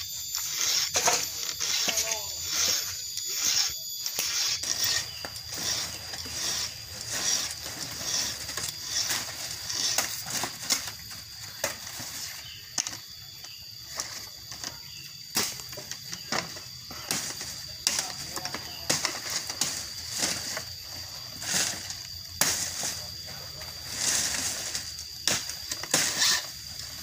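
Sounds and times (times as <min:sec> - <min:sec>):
file rasping on chainsaw chain: 0:00.3 - 0:10.3, 0:26.0 - 0:26.5.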